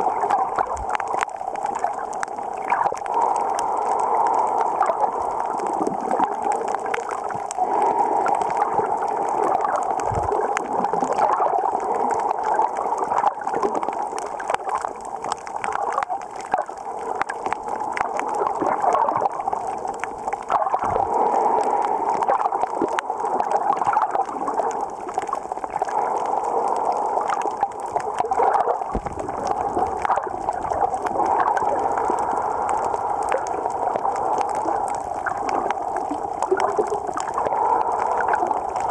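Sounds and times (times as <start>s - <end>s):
fine crackling clicks: 0.0s - 38.9s
muffled underwater water rush: 0.0s - 38.9s.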